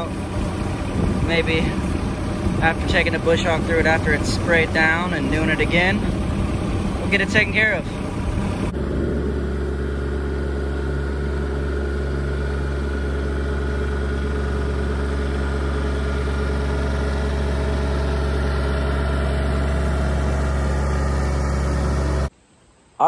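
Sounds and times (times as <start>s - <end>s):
tractor engine running: 0.0s - 22.3s.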